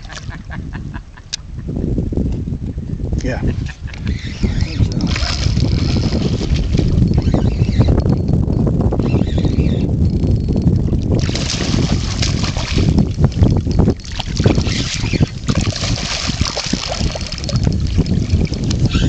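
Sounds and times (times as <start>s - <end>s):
wind buffeting microphone: 0.0s - 19.0s
fish splashing water: 4.9s - 7.0s, 11.0s - 19.0s.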